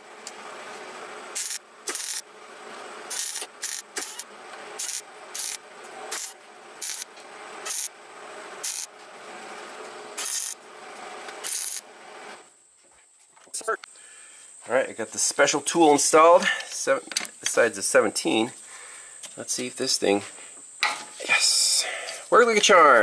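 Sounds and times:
welder steady hum: 0:00.0 - 0:12.5
welder arc crackling: 0:01.3 - 0:02.3, 0:03.1 - 0:12.4.

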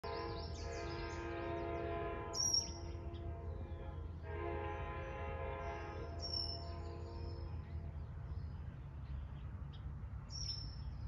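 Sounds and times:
train horn blasts: 0:00.0 - 0:07.6
birds chirping: 0:00.0 - 0:11.0.

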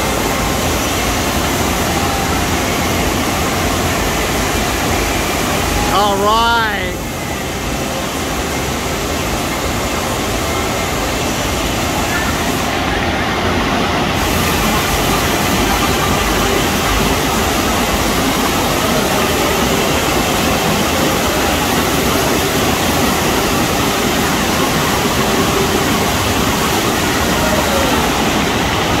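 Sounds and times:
rush of pumped water: 0:00.0 - 0:29.0.

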